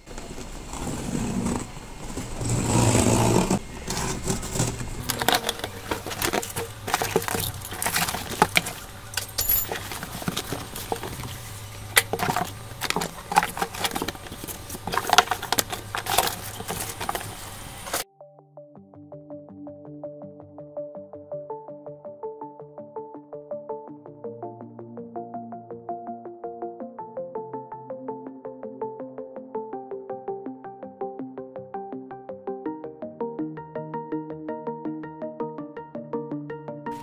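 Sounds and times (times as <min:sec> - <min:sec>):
foam and cardboard rustling: 0:00.0 - 0:18.0
packing tape being slit: 0:02.4 - 0:18.0.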